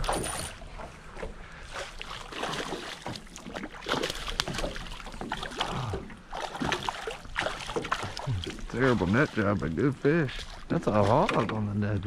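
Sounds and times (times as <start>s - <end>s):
fish splashing in water: 1.6s - 11.2s.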